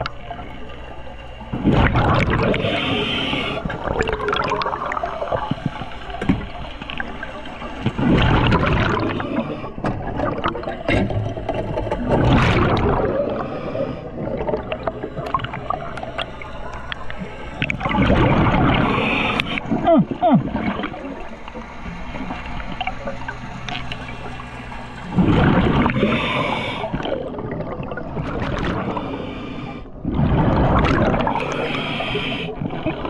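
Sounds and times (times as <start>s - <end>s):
rush of bubbles underwater: 1.5s - 33.0s
faint crackling clicks: 14.5s - 17.9s, 19.3s - 19.7s, 21.4s - 24.7s.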